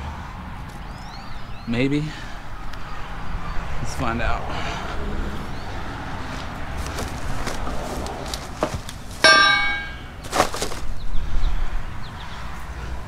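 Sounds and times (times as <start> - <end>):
metallic clang: 9.2 - 10.3.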